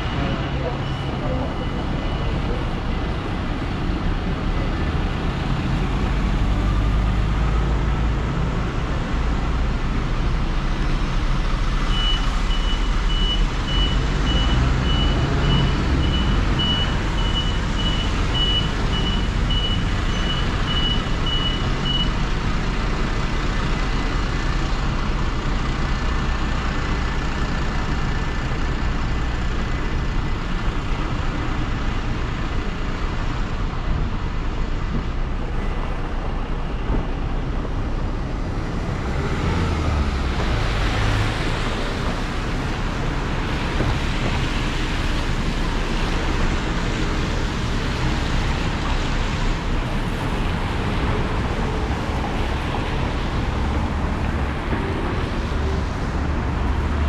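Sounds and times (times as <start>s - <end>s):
street traffic rumble: 0.0s - 57.0s.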